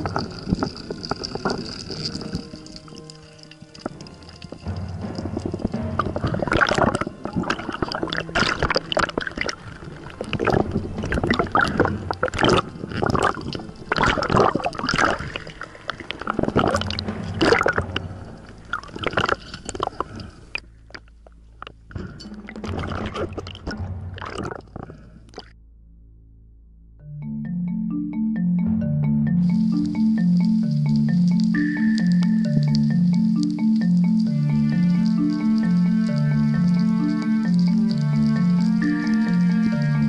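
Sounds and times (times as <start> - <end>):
underwater knocking and scraping: 0.0 - 25.5.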